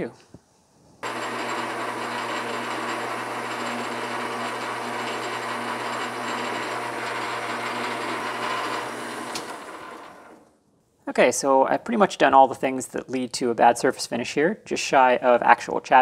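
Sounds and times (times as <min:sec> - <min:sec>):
metal lathe whirring: 0:01.0 - 0:10.5.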